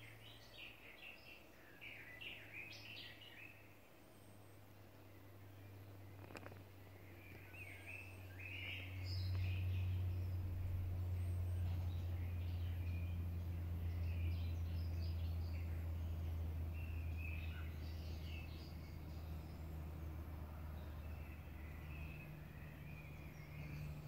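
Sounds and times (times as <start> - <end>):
birds chirping: 0.0 - 24.0
steady low hum: 0.0 - 24.0.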